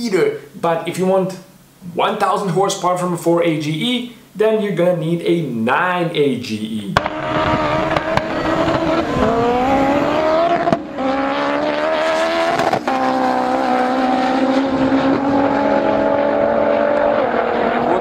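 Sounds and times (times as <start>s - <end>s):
cars accelerating hard: 7.0s - 18.0s.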